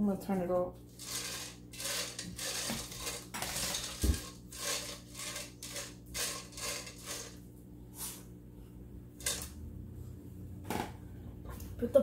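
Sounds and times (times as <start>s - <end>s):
spatula stirring candies in pot: 0.9s - 7.4s, 9.2s - 9.5s.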